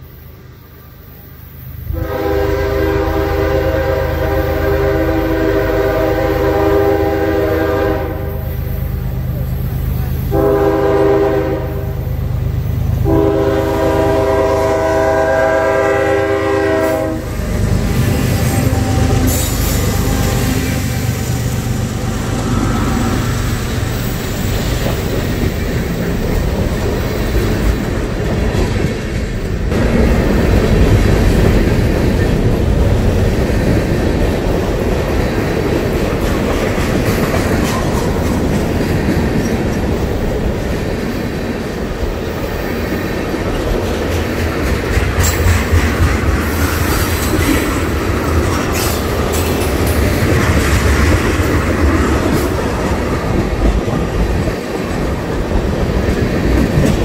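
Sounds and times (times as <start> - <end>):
locomotive engine rumbling: 0.8 - 57.0
locomotive air horn blasts: 1.9 - 8.6, 10.3 - 12.1, 13.0 - 23.4
train wheels clickety-clack: 12.4 - 57.0.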